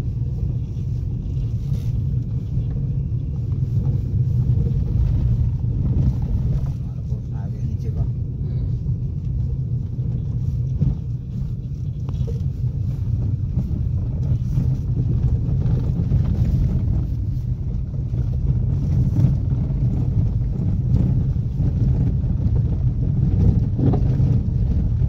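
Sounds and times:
vehicle engine and road rumble: 0.0s - 25.0s
knocks and rattles from bumps: 9.8s - 25.0s.

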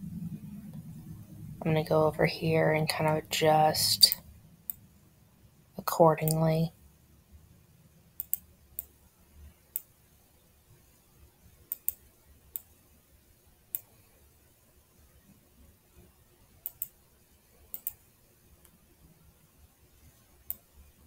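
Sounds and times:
computer mouse clicking: 8.2s - 9.0s, 9.7s - 9.9s, 11.7s - 12.7s, 16.6s - 17.0s, 17.7s - 18.0s, 20.4s - 20.7s.

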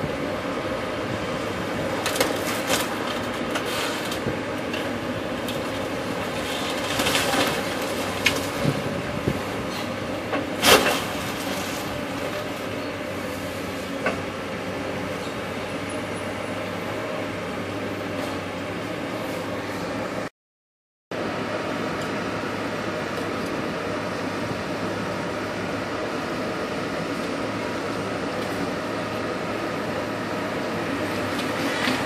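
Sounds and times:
excavator engine rumble: 0.0s - 20.3s, 21.1s - 32.0s
debris cracking and crashing: 2.0s - 4.2s, 4.8s - 8.8s.

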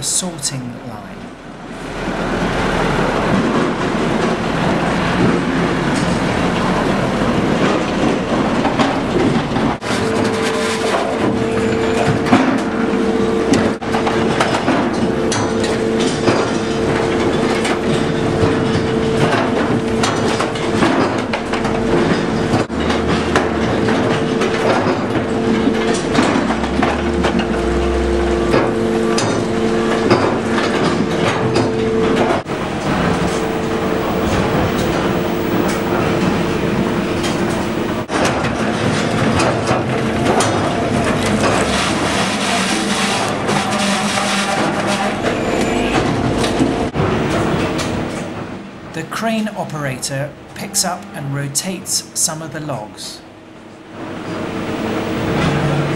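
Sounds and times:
steady machine whine: 0.0s - 43.5s, 53.3s - 55.9s
loader crane mechanical din: 0.0s - 48.9s, 53.3s - 55.9s.

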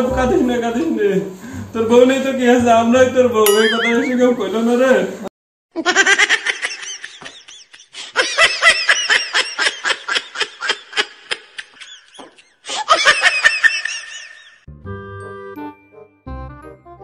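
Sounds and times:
high-pitched rapid laugh: 5.7s - 14.6s.

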